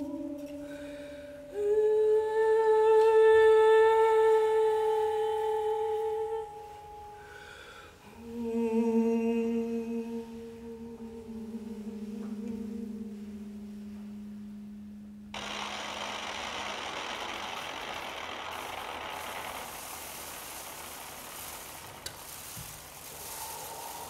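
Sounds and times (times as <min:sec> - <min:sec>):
low hum with overtone: 0:00.0 - 0:24.0
steady rushing static noise: 0:15.4 - 0:24.0.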